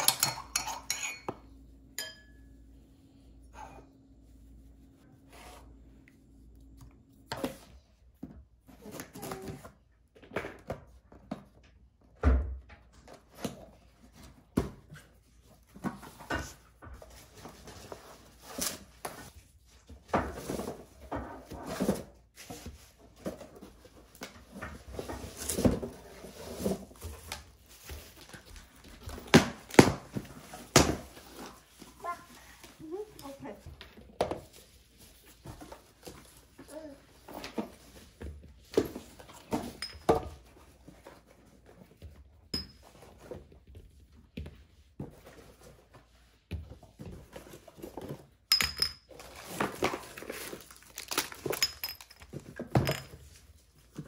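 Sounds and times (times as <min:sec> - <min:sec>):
plastic packaging rustling: 0:49.2 - 0:52.6.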